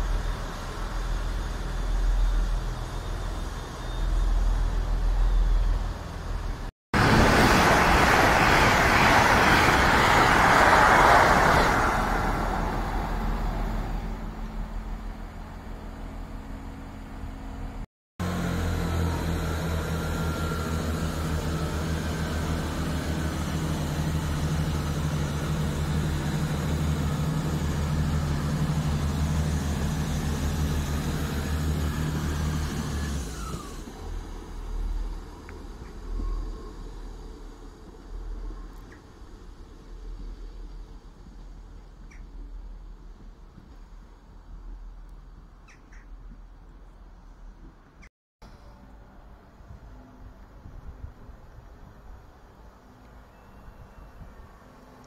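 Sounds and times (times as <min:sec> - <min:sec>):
train passing at speed: 0:00.0 - 0:17.0
diesel train engine humming: 0:00.0 - 0:45.6.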